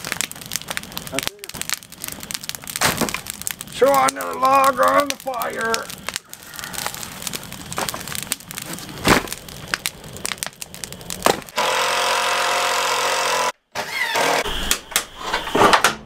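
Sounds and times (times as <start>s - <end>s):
wood fire crackling: 0.0s - 14.1s
logs thudding into fire pit: 1.2s - 4.0s, 7.3s - 11.6s
cordless drill running: 11.6s - 14.4s.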